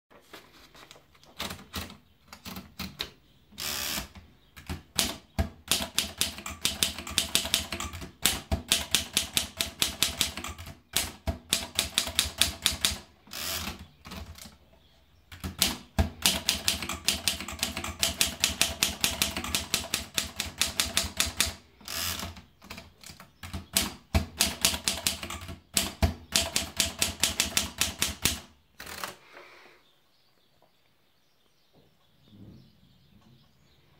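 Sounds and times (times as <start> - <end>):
typewriter keys clacking: 1.2 - 3.0, 4.6 - 14.5, 15.3 - 29.0
typewriter paper feed knocks: 4.6 - 13.0, 15.4 - 21.6, 23.4 - 28.4.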